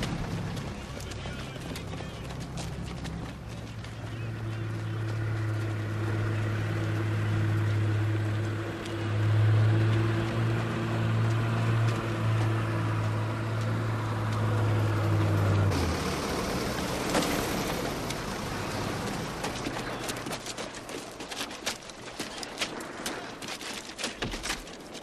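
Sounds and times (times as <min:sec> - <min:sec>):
vehicle engine droning: 0:00.0 - 0:22.8
boots on gravel: 0:00.0 - 0:25.0
troops climbing down rustling: 0:00.0 - 0:25.0.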